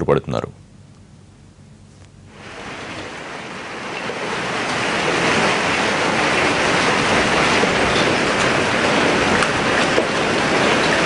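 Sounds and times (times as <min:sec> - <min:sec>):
heavy rain pouring: 0:02.3 - 0:11.0.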